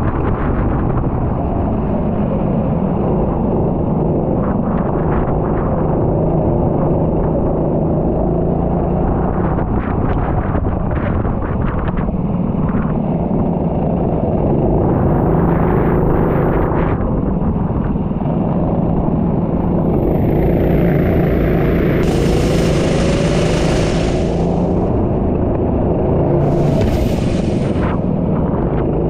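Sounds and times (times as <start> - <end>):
racing vehicle engine at speed: 19.3 - 29.0
hiss: 21.3 - 25.0, 26.4 - 28.2.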